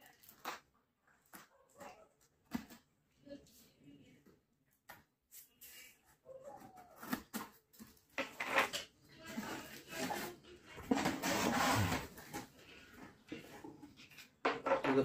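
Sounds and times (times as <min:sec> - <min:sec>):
cardboard flaps scraping: 0:09.5 - 0:12.5.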